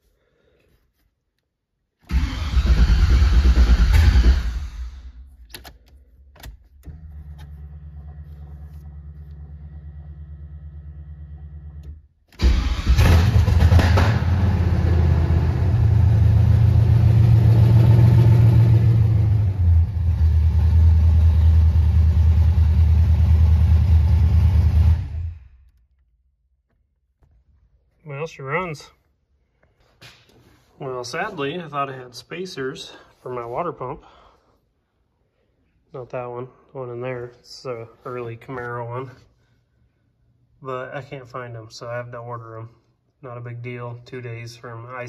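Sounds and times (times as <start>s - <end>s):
car engine starting and idling: 2.1s - 25.9s.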